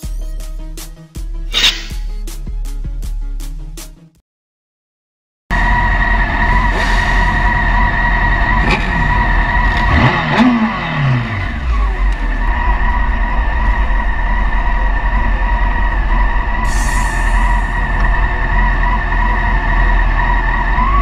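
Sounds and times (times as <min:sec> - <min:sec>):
motorcycle engines: 0:07.4 - 0:16.7.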